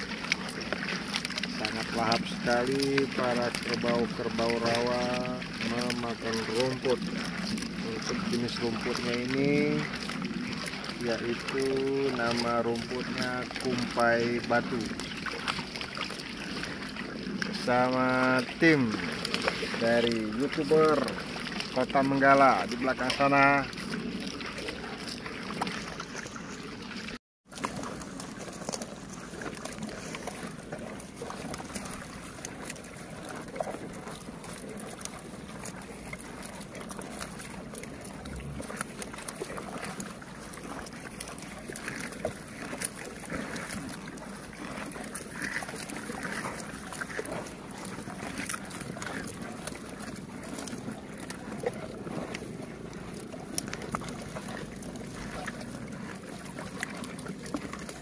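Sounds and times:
buffalo chewing grass: 0.0s - 58.0s
water sloshing: 0.0s - 58.0s.

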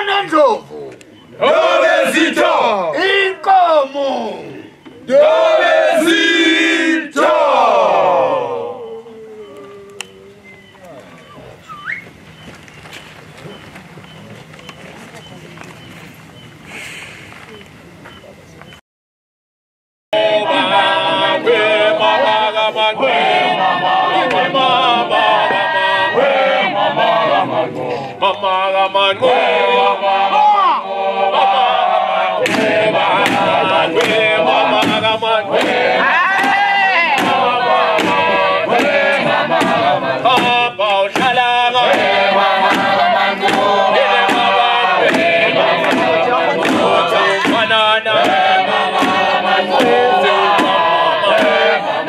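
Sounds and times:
group chanting and singing: 0.0s - 10.7s, 20.2s - 52.0s
sharp rhythmic beats: 29.3s - 52.0s.

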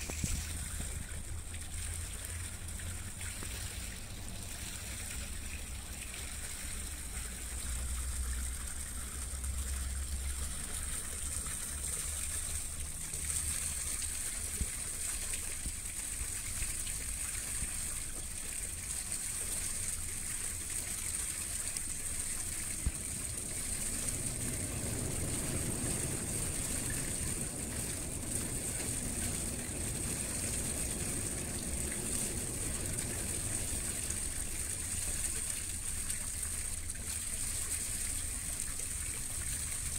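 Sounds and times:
water rushing along hull: 0.0s - 39.9s
low rumble: 22.6s - 36.0s.

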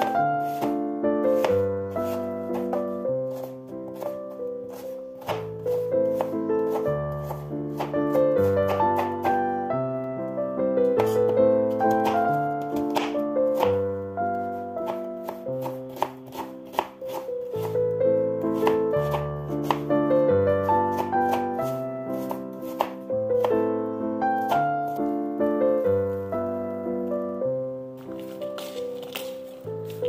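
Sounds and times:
knife chopping on cutting board: 0.0s - 0.8s, 1.4s - 9.4s, 11.0s - 13.8s, 14.9s - 17.8s, 18.6s - 19.9s, 20.9s - 23.6s
piano music: 0.0s - 30.0s.

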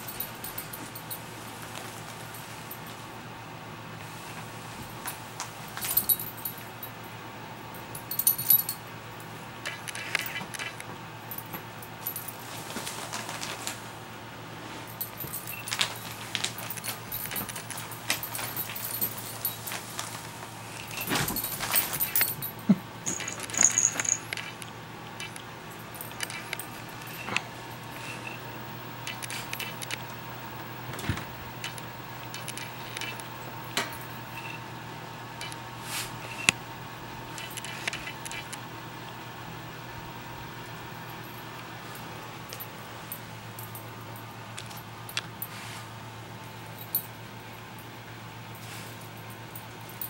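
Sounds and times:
dog tags jingling: 5.8s - 7.0s, 7.8s - 8.8s, 15.0s - 19.8s, 20.8s - 24.6s, 25.2s - 27.4s.

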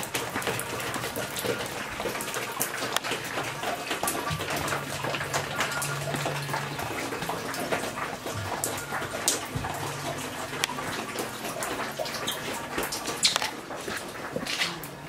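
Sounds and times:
water hissing with patters: 0.0s - 15.0s
low steady hum: 3.4s - 13.1s.

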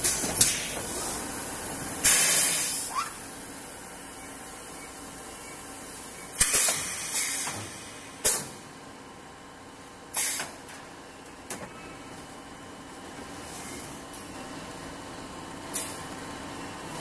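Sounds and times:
sharp clack with hiss: 0.0s - 1.2s, 2.0s - 2.9s, 6.4s - 8.6s, 10.2s - 10.6s, 15.7s - 16.0s
compressed air hissing: 0.0s - 3.4s, 5.9s - 8.5s, 10.2s - 10.5s.

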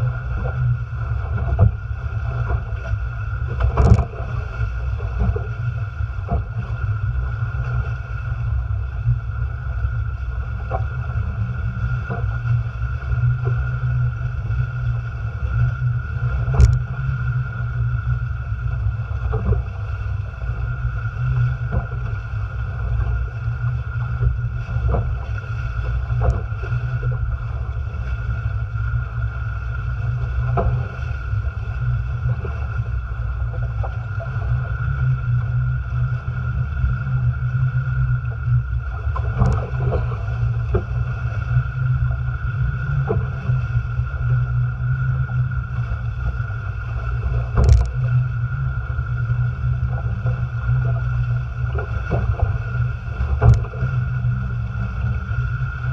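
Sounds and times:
water rushing and splashing: 0.0s - 55.9s
wind rumble on camera: 0.0s - 55.9s.

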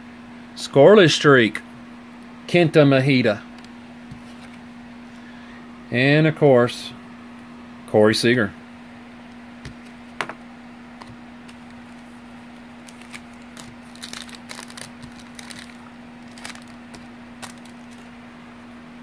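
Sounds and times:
cards clicking and rustling: 12.8s - 18.1s.

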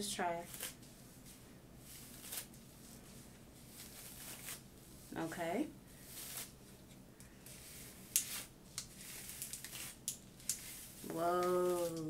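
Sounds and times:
brush swishing through wet hair: 0.5s - 6.8s, 7.4s - 12.0s
woman's wordless tone: 5.1s - 5.7s, 11.0s - 12.0s.

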